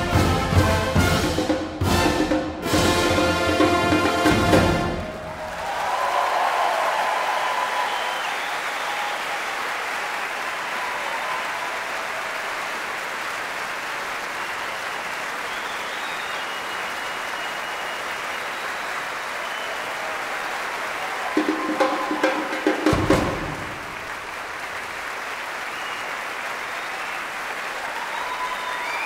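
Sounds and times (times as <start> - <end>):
brass band playing: 0.0 - 5.4
audience applauding: 3.2 - 29.0.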